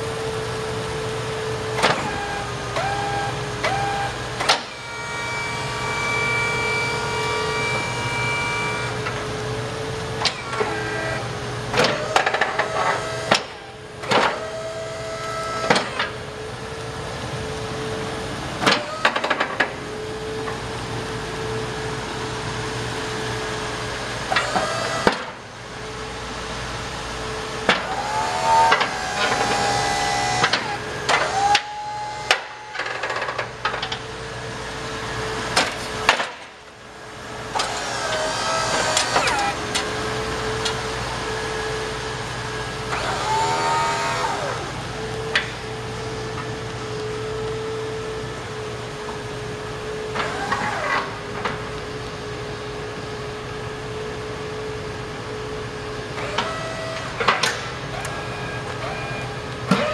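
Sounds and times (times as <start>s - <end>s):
hydraulic pump motor running: 0.0s - 59.9s
short squeals: 2.0s - 9.0s, 27.8s - 33.4s, 37.6s - 39.6s, 42.8s - 44.8s, 56.2s - 59.9s.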